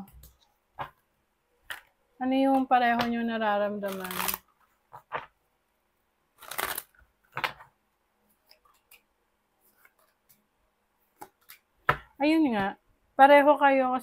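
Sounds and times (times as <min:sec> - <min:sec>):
cards swishing and snapping: 0:06.4 - 0:07.5.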